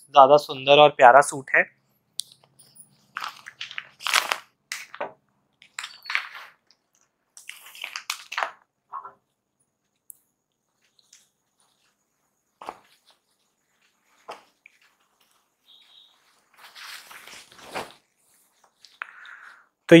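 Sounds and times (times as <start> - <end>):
fabric rustling: 10.7 - 19.0.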